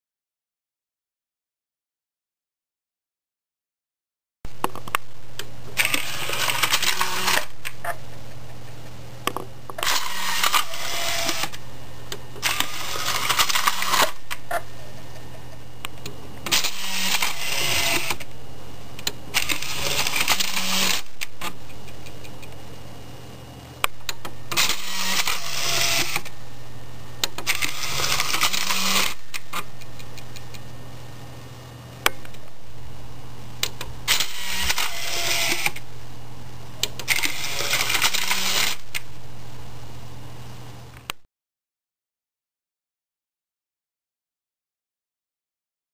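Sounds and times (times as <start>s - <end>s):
disc drive whirring and rattling: 4.5s - 41.2s
steady low hum: 4.5s - 41.2s.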